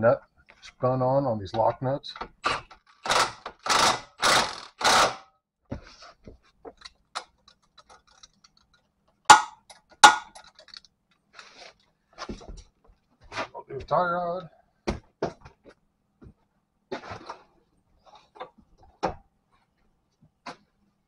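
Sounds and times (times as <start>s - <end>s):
impact wrench spinning a nut: 2.9s - 5.2s.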